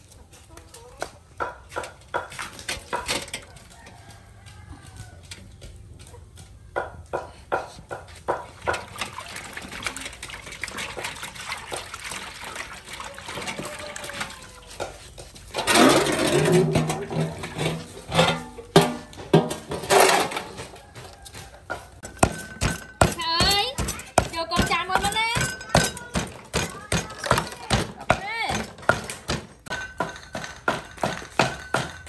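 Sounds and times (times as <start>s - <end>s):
hands splashing water in a basin: 8.3s - 14.6s.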